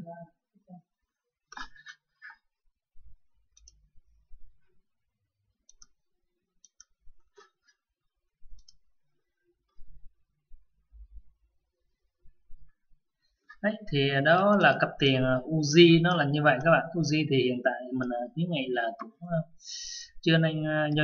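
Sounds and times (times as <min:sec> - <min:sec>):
computer mouse clicking: 0:05.6 - 0:06.0, 0:06.6 - 0:07.5, 0:08.5 - 0:08.9.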